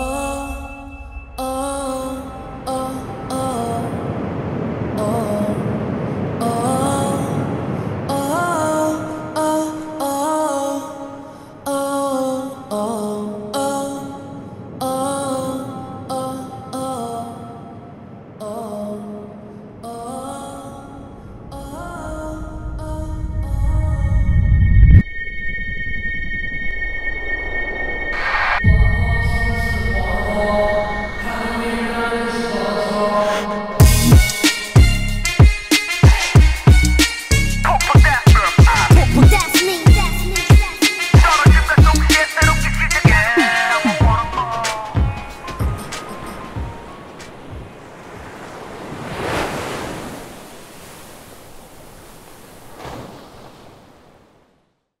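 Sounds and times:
sea waves washing: 0:00.0 - 0:23.5, 0:29.7 - 0:54.7
low rumble: 0:21.3 - 0:32.4
sustained high electronic tones: 0:24.3 - 0:34.2
loud deep electronic music: 0:33.8 - 0:43.4.

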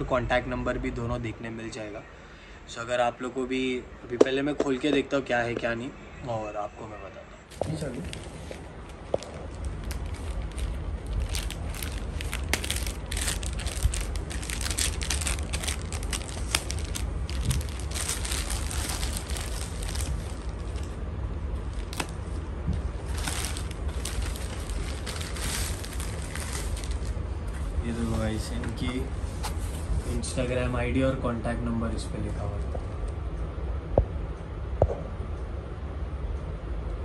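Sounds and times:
low steady hum: 0:00.0 - 0:37.0
wrapping crinkling and rustling: 0:07.5 - 0:21.0, 0:21.6 - 0:28.6.

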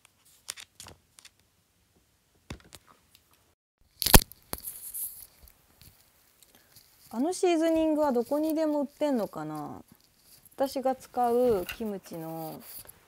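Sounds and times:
cord scraping rustle: 0:04.5 - 0:13.0.

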